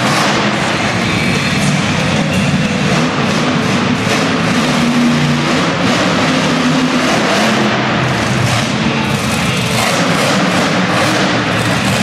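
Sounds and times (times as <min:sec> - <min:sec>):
monster truck engine revving: 0:00.0 - 0:12.0.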